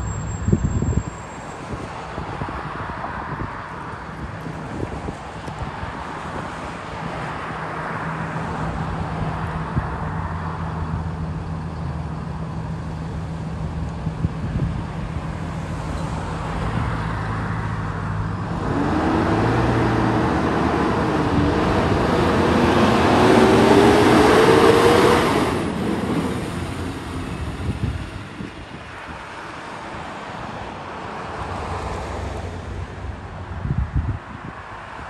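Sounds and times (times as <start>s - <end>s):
bus engine accelerating: 8.0s - 30.7s.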